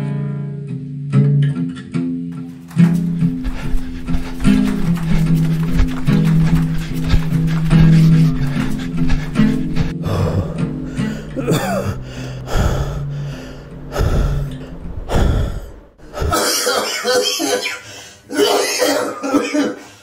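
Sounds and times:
man gasping for breath: 0:02.9 - 0:16.5
elderly man coughing: 0:11.3 - 0:12.0, 0:16.0 - 0:20.0.

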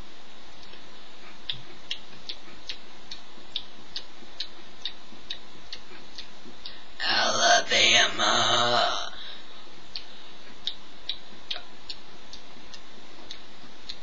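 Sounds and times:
faint steady hiss: 0:00.0 - 0:14.0
light regular ticking: 0:00.5 - 0:07.0, 0:09.9 - 0:14.0.

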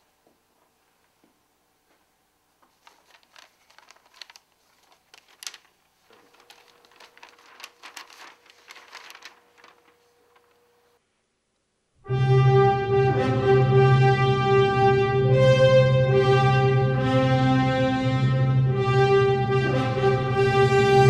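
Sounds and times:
faint steady hum: 0:00.0 - 0:12.1
paper rustling: 0:02.6 - 0:11.0.

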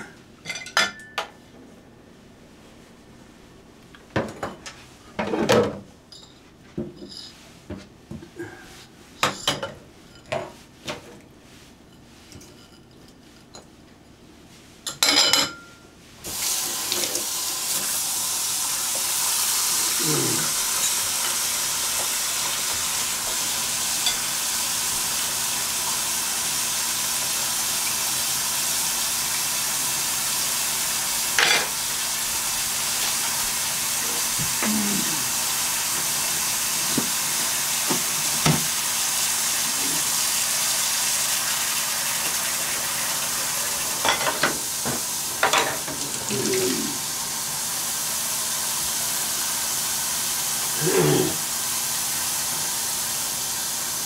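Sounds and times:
dishes clinking in metal sink: 0:00.4 - 0:01.4, 0:09.2 - 0:11.0, 0:14.8 - 0:15.8, 0:31.4 - 0:31.8, 0:44.0 - 0:44.6, 0:45.4 - 0:46.1
tap water running into basin: 0:16.2 - 0:54.0.

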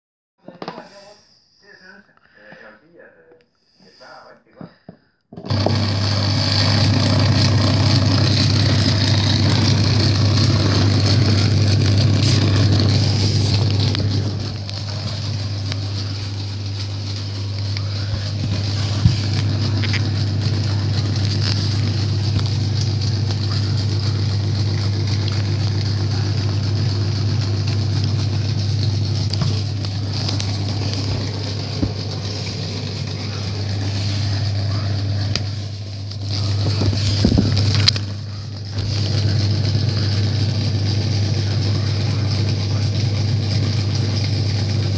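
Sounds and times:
compressor low hum: 0:02.8 - 0:44.9
air hissing: 0:12.0 - 0:23.7.

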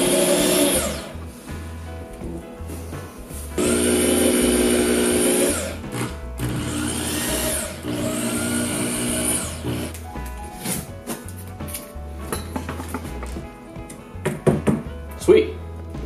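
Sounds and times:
power drill drilling into wall: 0:00.0 - 0:01.2, 0:03.6 - 0:10.0.

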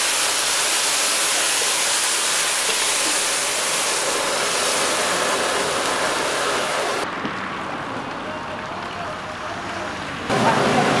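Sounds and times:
stir-frying sizzle in wok: 0:00.0 - 0:07.0.

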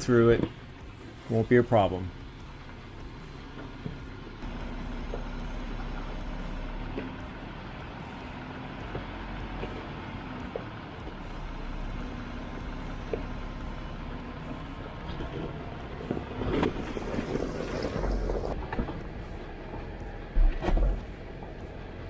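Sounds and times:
car engine running low: 0:00.0 - 0:22.0.

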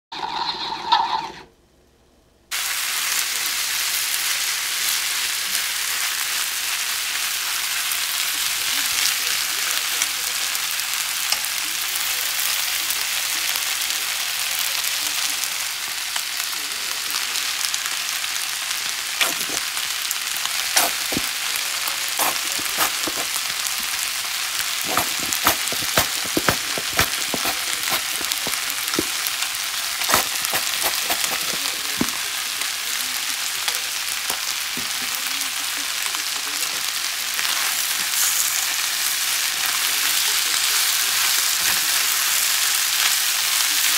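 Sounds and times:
food sizzling in a frying pan: 0:02.5 - 0:43.9
utensils knocking on a pan: 0:24.8 - 0:29.1, 0:30.1 - 0:32.2.

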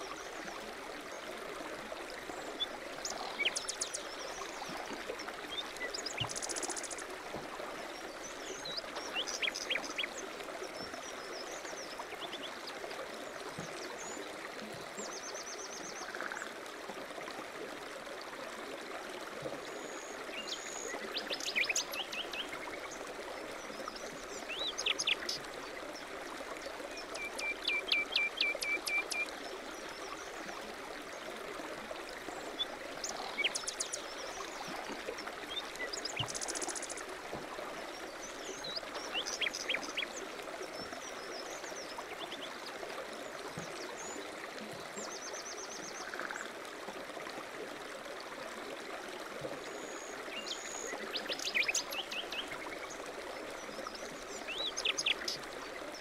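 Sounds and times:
stream running: 0:00.0 - 0:56.0
songbirds chirping: 0:32.2 - 0:46.4.

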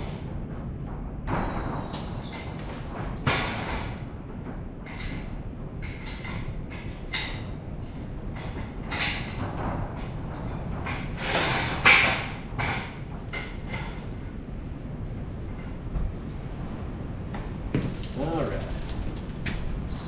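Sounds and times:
knocks and scrapes under car: 0:08.2 - 0:14.3.

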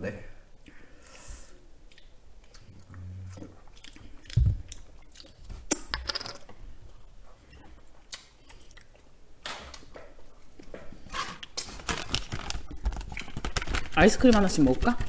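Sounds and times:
clicks and rustles of eating: 0:01.9 - 0:06.4, 0:09.7 - 0:15.0.

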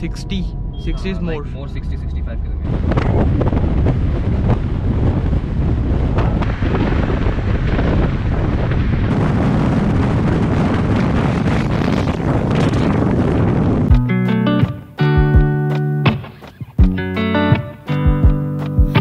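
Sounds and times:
wind buffeting microphone: 0:00.0 - 0:14.1.

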